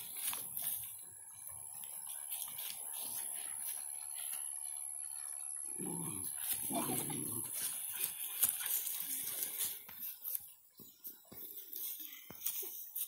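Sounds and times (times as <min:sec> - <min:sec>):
dog growling in play: 0:05.6 - 0:07.6.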